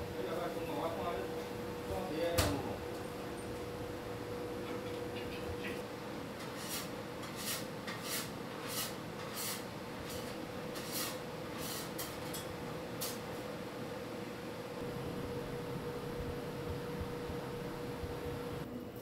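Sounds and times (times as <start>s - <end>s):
steady hum: 0.0s - 18.8s
short hissy scraping: 6.4s - 12.0s.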